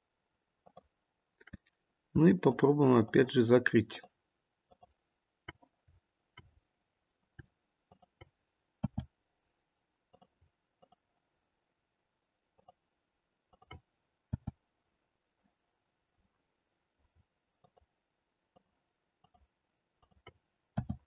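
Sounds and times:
mouse and keyboard clicks: 0:07.4 - 0:09.1, 0:10.1 - 0:11.0, 0:13.5 - 0:14.6, 0:18.6 - 0:21.0.

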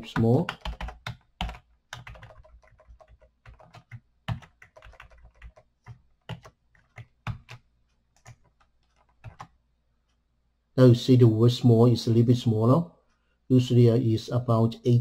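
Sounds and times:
keyboard typing clicks: 0:00.0 - 0:09.6.

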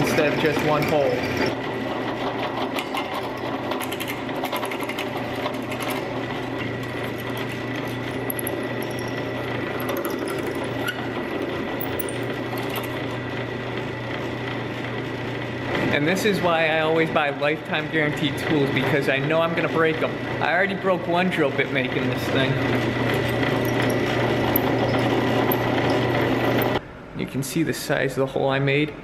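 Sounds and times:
drill press running: 0:00.0 - 0:26.8
drill bit clicking and scraping: 0:22.3 - 0:26.8.

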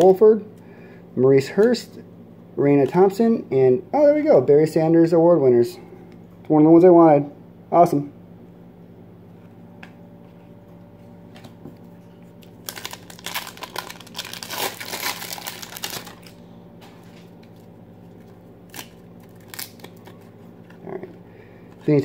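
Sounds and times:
foil wrapper tearing and crinkling: 0:12.4 - 0:16.4, 0:18.6 - 0:20.3.

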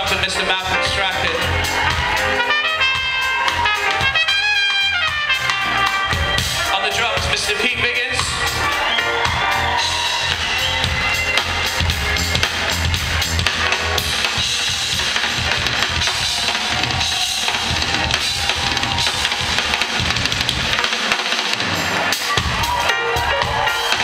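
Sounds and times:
live band playing: 0:00.0 - 0:24.0
drum kit hits: 0:09.2 - 0:24.0.

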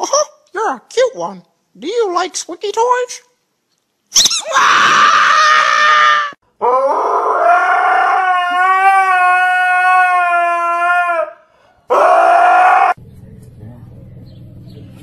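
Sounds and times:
dog howling: 0:04.6 - 0:13.0.

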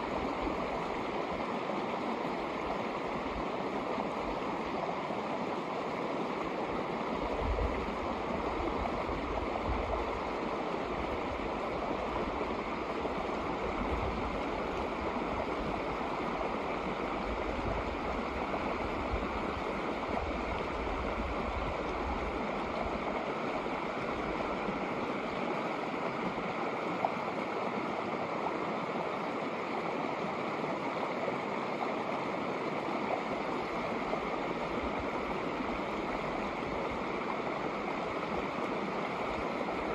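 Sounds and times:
creek running over rocks: 0:00.0 - 0:39.9.

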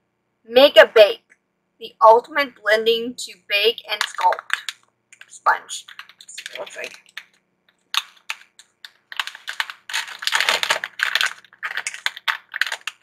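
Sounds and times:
crinkly packaging unwrapping: 0:04.0 - 0:13.0.

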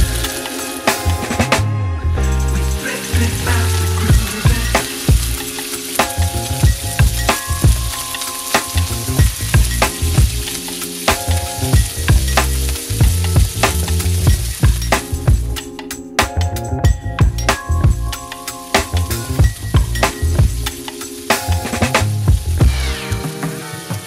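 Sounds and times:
shrimp sizzling in oil: 0:00.0 - 0:01.3, 0:02.5 - 0:15.5, 0:18.1 - 0:22.7
background music: 0:00.0 - 0:24.0.

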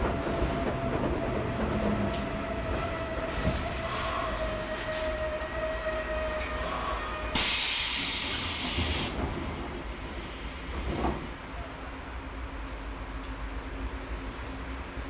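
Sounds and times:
train low rumble: 0:00.0 - 0:15.0
compressed air hiss: 0:07.3 - 0:09.2.

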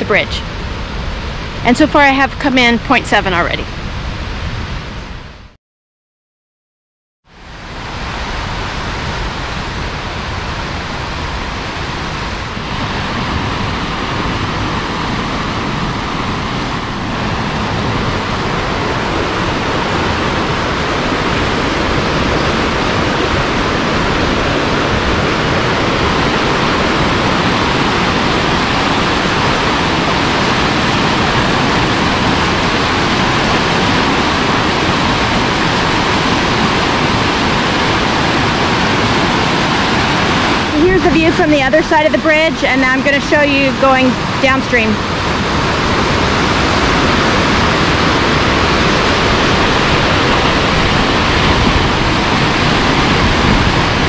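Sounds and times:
creek rushing over rocks: 0:07.5 - 0:54.0.

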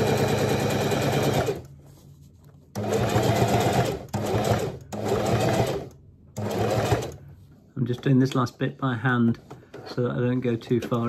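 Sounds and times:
sewing machine stitching: 0:00.0 - 0:01.7, 0:02.8 - 0:07.2.

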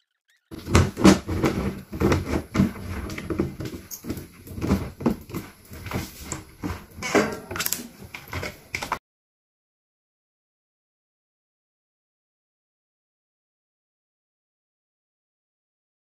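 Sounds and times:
plastic knocking on plastic: 0:00.5 - 0:09.0.

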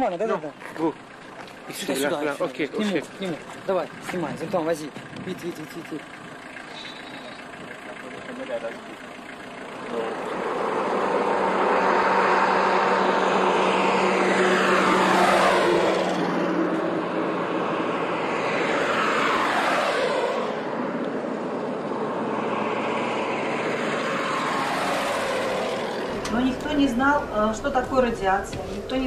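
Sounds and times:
vehicles driving past: 0:00.0 - 0:29.0.

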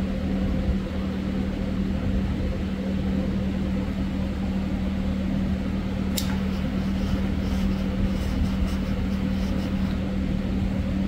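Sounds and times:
steady low hum: 0:00.0 - 0:11.0
torch lighter clicking: 0:06.1 - 0:06.5.

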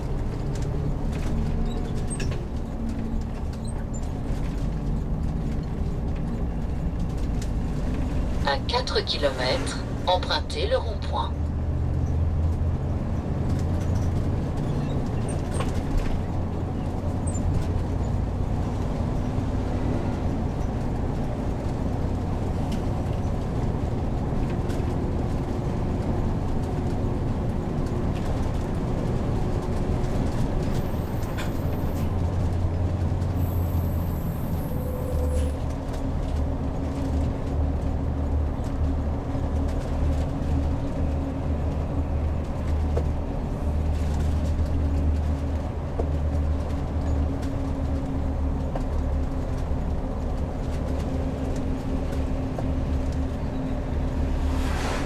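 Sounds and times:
road noise: 0:00.0 - 0:55.0
low engine drone: 0:51.1 - 0:55.0.

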